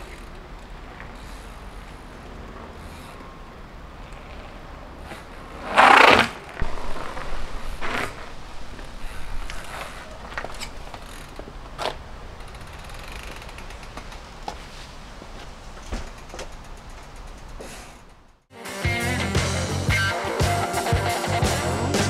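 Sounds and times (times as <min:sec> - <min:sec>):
bike rushing over asphalt: 0:00.8 - 0:18.3
light knocks and clicks from bike: 0:06.6 - 0:18.4
bicycle hub fast ticking: 0:09.0 - 0:14.4, 0:16.0 - 0:18.4.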